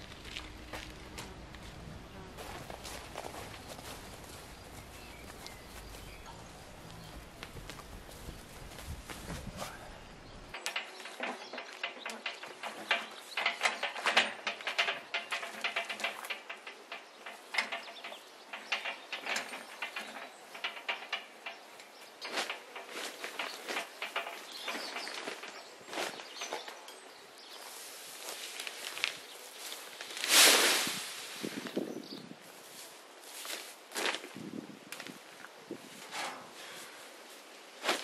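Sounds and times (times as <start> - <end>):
cement mixer rattling and clanking: 10.5 - 25.5.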